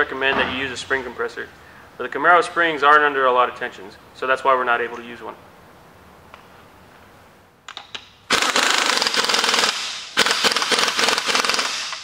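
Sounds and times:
impact wrench hammering: 7.7 - 12.0.

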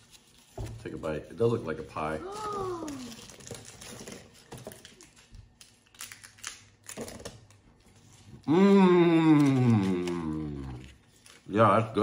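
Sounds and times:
snack packaging crinkling: 2.0 - 12.0
person humming mmm: 8.4 - 11.0.

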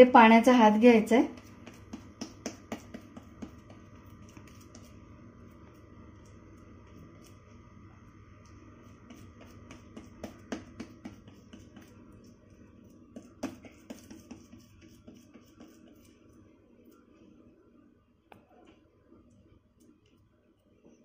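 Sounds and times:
low steady hum: 0.0 - 21.0
fingers patting soft dough: 1.2 - 7.4, 8.4 - 17.0.

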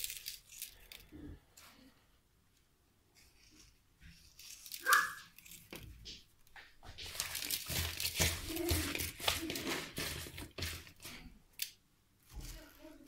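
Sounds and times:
plastic bag rustling: 0.0 - 1.2, 3.2 - 11.4
hands handling fish in bowl: 3.1 - 13.0.

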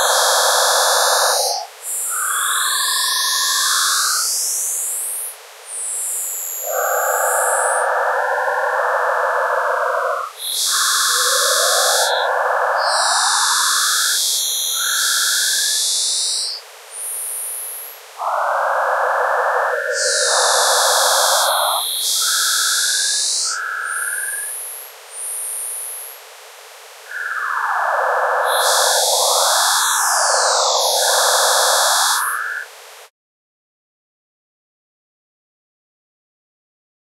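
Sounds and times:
harsh synthetic buzzing: 9.3 - 26.2, 27.1 - 32.6.

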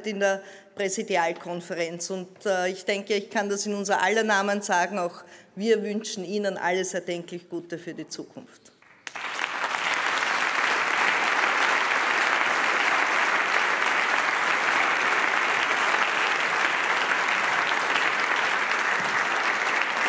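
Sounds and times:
audience applause: 9.0 - 20.0.

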